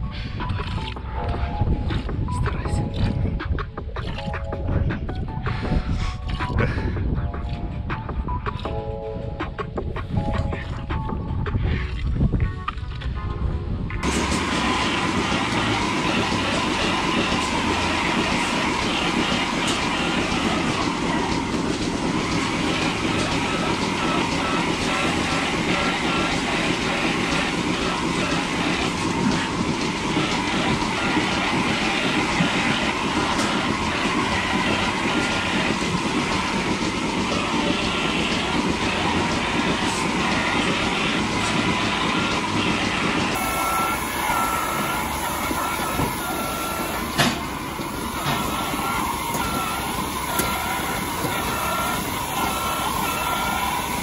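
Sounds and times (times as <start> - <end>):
close machine noise: 14.0 - 54.0
milking machinery rumbling: 14.0 - 54.0.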